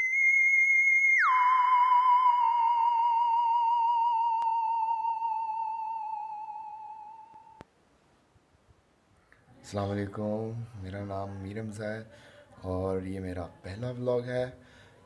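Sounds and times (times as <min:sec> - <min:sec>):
wavering electronic tone: 0:00.0 - 0:07.6.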